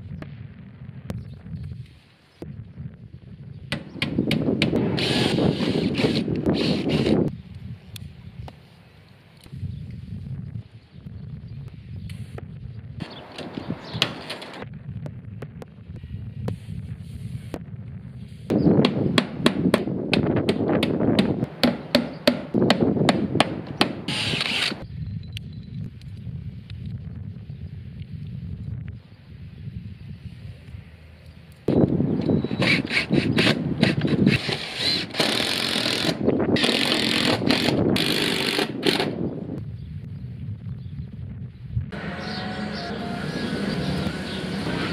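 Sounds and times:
hammer on metal roof: 18.8s - 24.1s
power driver fastening screws into metal: 24.1s - 24.8s.

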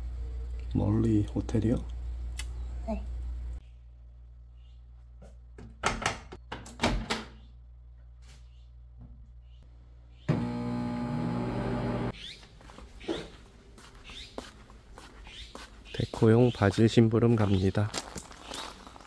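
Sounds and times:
machine humming: 10.3s - 12.1s.

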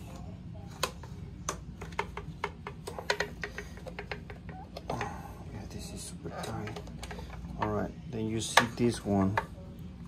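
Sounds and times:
low steady hum: 0.0s - 10.0s
plastic parts clicking and knocking: 0.7s - 5.1s, 6.4s - 7.8s.

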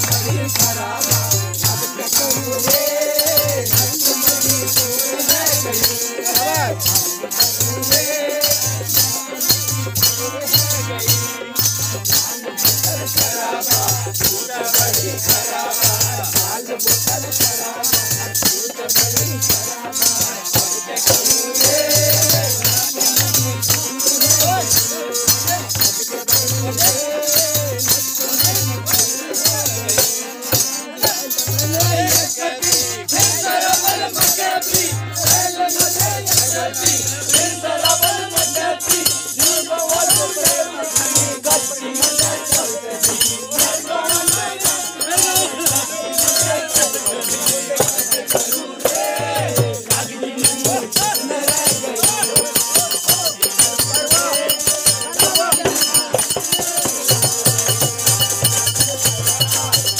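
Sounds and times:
hand-clapping: 0.0s - 49.6s
group singing folk song: 0.0s - 59.9s
rattling and jingling percussion: 0.0s - 59.9s.

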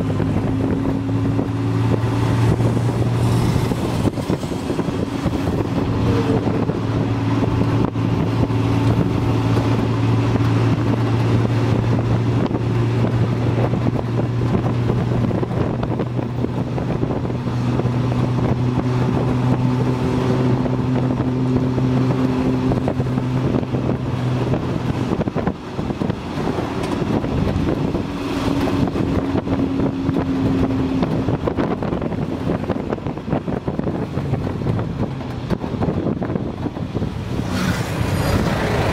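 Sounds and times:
tuk-tuk engine running: 0.0s - 38.9s
wind and road noise: 0.0s - 38.9s.

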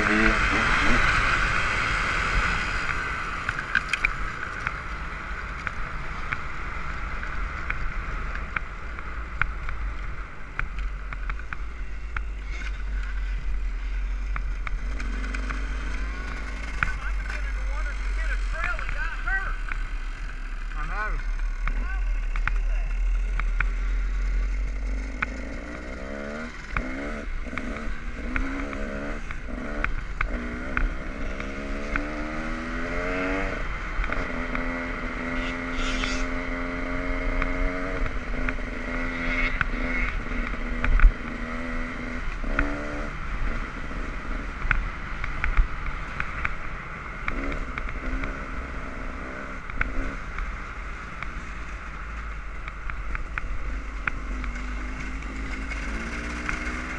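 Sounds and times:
dirt bike engine revving: 0.0s - 4.3s, 14.0s - 44.5s, 53.3s - 56.9s.

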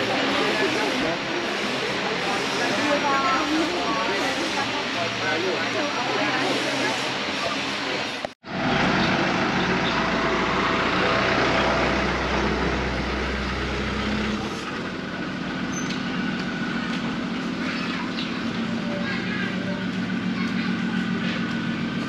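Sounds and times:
faint voices: 0.0s - 8.2s, 16.2s - 22.0s.

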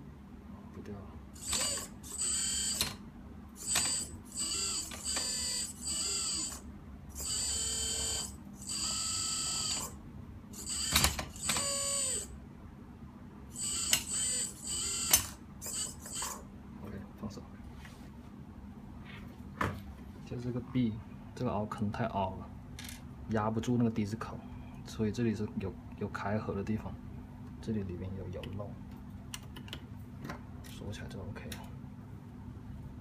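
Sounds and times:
servo whirring: 1.3s - 3.0s, 3.6s - 12.4s, 13.5s - 16.4s.

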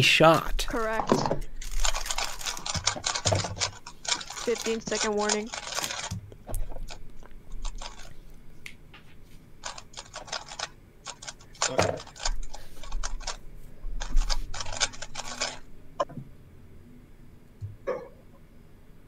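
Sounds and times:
rapid plastic cube clicking: 1.6s - 8.1s, 9.6s - 13.4s, 14.0s - 15.6s.

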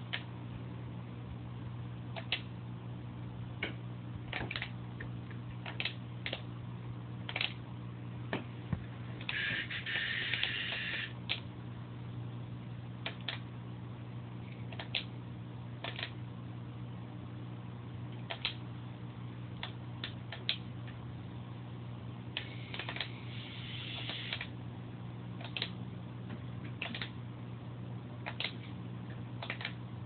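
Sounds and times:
aquarium equipment humming: 0.0s - 30.0s
sharp clicks: 18.3s - 18.6s, 26.8s - 27.1s, 28.3s - 28.7s.

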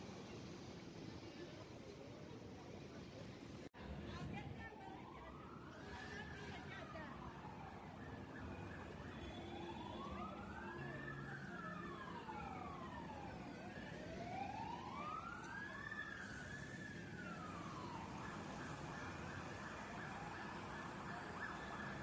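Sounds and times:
fire engine siren wailing: 4.8s - 22.0s.

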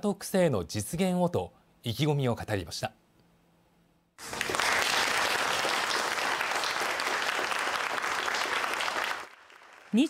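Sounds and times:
group of people clapping: 4.2s - 10.0s.

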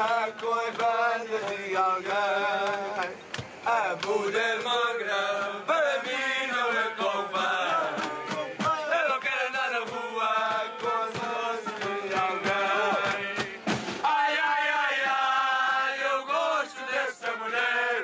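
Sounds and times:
group of voices singing: 0.0s - 18.0s.

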